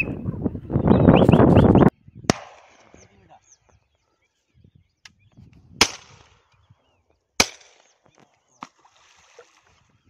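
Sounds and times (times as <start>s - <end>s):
shotgun shots: 2.3s - 2.9s, 5.8s - 6.4s, 7.4s - 7.9s.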